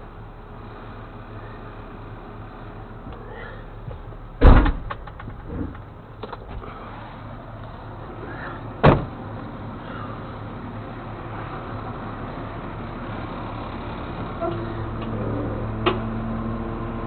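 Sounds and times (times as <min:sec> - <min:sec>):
low engine idle: 0:00.0 - 0:16.1
light clanks and rattles: 0:03.0 - 0:06.9, 0:14.3 - 0:16.1
loud slams: 0:04.4 - 0:05.7, 0:08.8 - 0:09.2.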